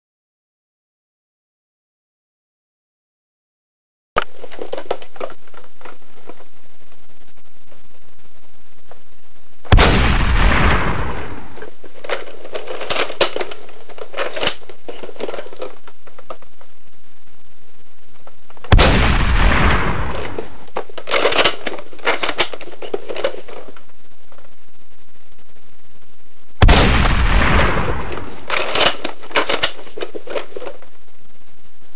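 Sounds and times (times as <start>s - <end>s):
steady hiss: 4.2s - 31.9s
gunshots: 9.7s - 11.6s, 18.7s - 22.4s, 26.6s - 29.8s.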